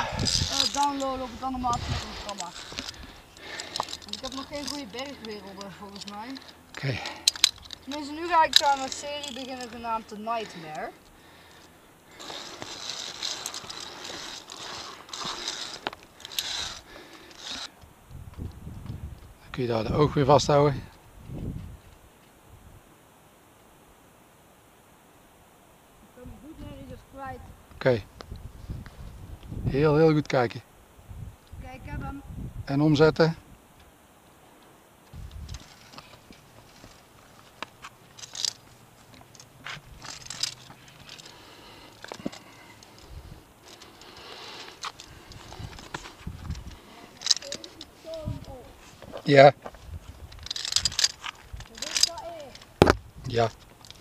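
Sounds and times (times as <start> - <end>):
carabiners scraping along steel cable: 0.0 - 17.8, 35.3 - 54.0.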